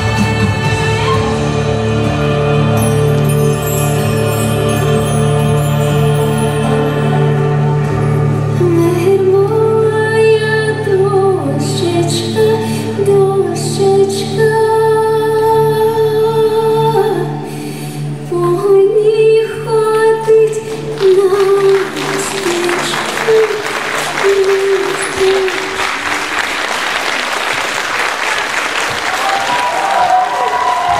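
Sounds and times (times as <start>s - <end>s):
women singing folk song: 3.9s - 26.1s
audience applause: 20.9s - 30.9s.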